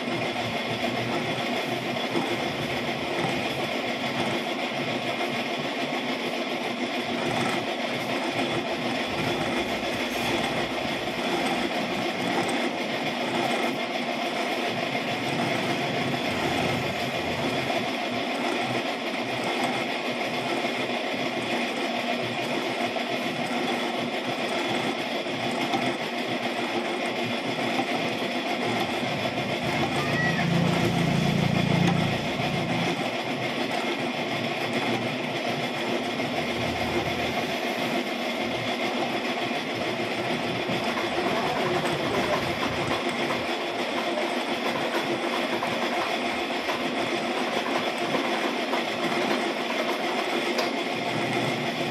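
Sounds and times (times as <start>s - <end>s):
metal lathe humming: 0.0s - 5.2s, 6.2s - 20.6s, 28.6s - 38.9s, 39.7s - 43.6s.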